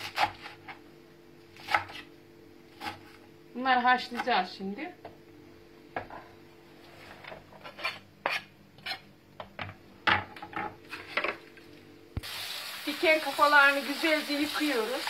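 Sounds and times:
knife scraping on cutting board: 7.0s - 9.1s
kitchen tap running: 12.2s - 15.0s.

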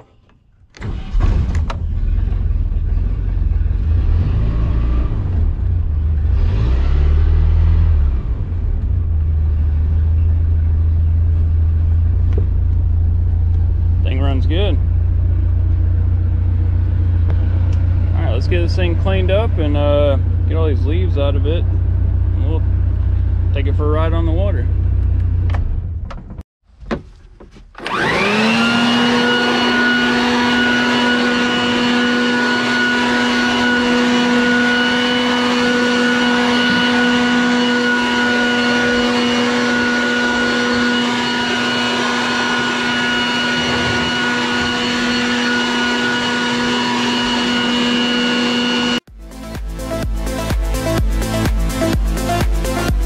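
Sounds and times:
shop vacuum motor humming: 27.8s - 49.1s.

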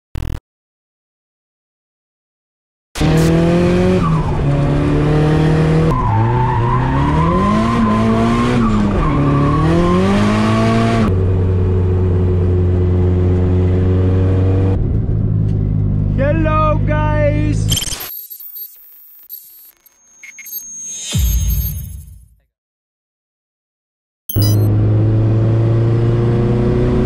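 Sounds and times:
car engine revving: 3.0s - 16.2s, 24.4s - 27.0s.

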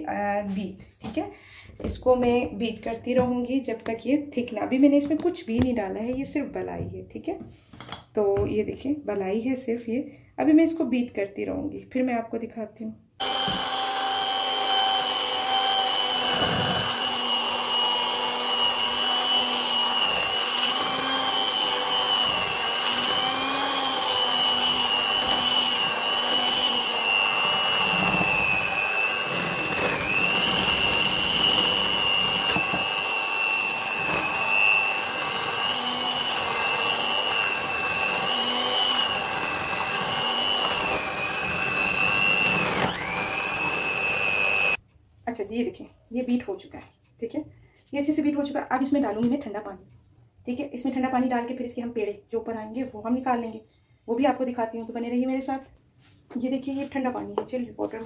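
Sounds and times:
electric hand mixer whining: 13.2s - 44.8s.

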